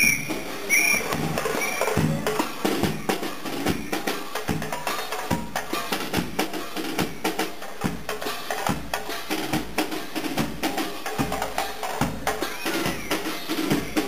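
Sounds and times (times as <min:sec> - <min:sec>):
snare drum strokes: 0:00.0 - 0:14.0
bass drum thumps: 0:00.2 - 0:07.2.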